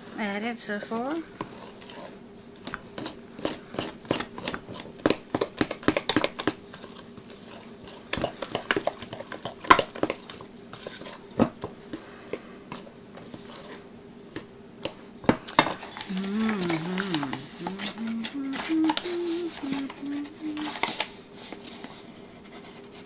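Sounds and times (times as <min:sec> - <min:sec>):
utensil scraping a steel bowl: 0:01.4 - 0:04.9, 0:10.7 - 0:11.3.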